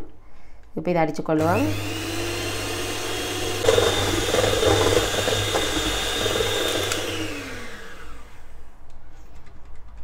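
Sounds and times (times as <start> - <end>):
electric hand mixer whipping cream: 1.4 - 8.5.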